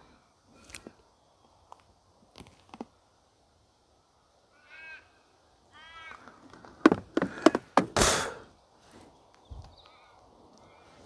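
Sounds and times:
raven cawing: 4.5s - 7.6s.

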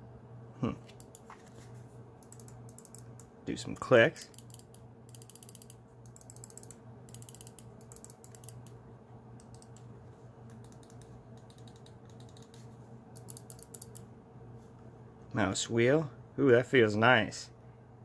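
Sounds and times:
rapid mouse clicks: 0.9s - 1.3s, 2.2s - 3.3s, 4.3s - 8.8s, 9.4s - 14.1s.

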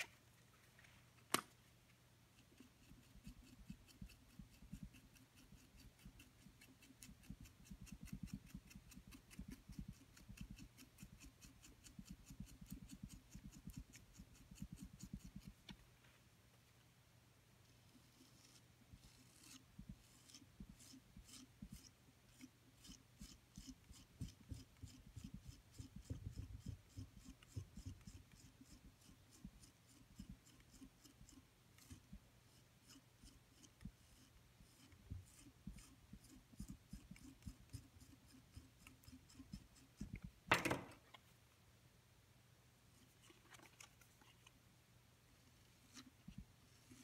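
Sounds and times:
fingers scratching wet clay: 2.3s - 15.8s, 17.7s - 40.4s, 45.8s - 47.0s.

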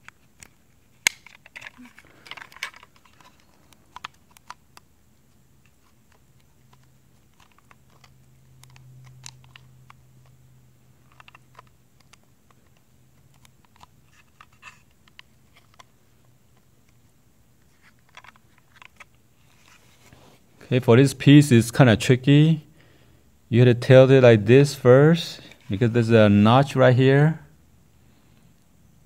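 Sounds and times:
clicks and taps of plastic parts: 0.0s - 4.9s, 6.1s - 10.3s, 11.0s - 15.9s, 18.0s - 19.1s.

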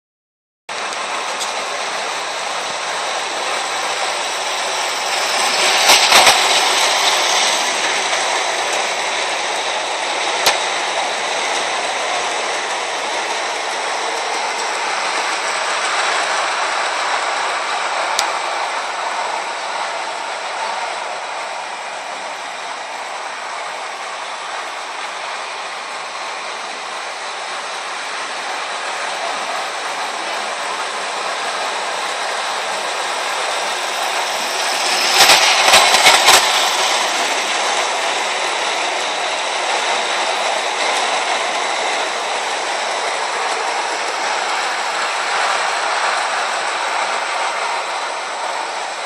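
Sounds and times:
model train rolling on track: 0.7s - 49.0s.

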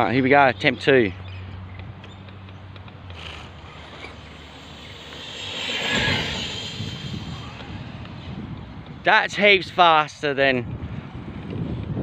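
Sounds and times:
wind buffeting microphone: 1.6s - 12.0s
rc truck motor speeding past: 2.8s - 8.5s.

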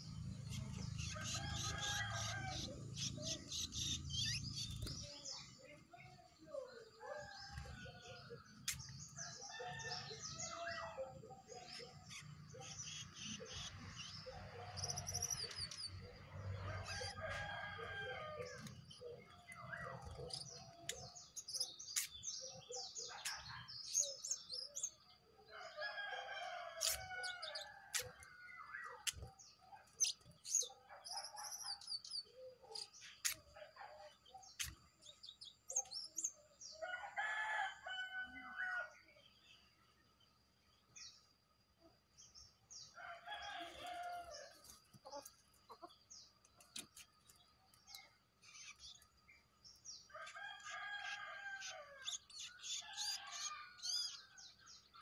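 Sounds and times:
songbirds chirping: 0.0s - 55.0s
rooster crowing: 1.2s - 2.7s, 16.6s - 18.6s.

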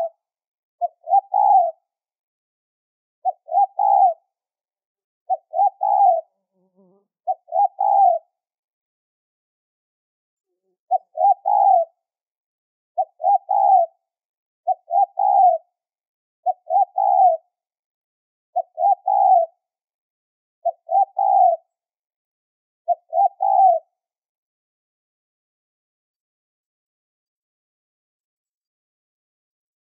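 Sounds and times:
dove cooing: 0.8s - 1.8s, 3.2s - 4.2s, 5.3s - 8.3s, 10.6s - 12.0s, 13.0s - 14.0s, 14.7s - 15.6s, 16.4s - 17.4s, 18.6s - 19.6s, 20.6s - 21.7s, 22.9s - 23.9s.

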